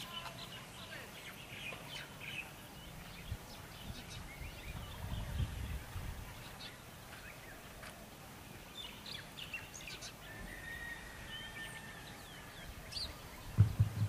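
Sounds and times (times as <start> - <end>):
birds chirping: 0.0 - 14.0
outdoor background hiss: 0.0 - 14.0
low thump: 13.6 - 14.0.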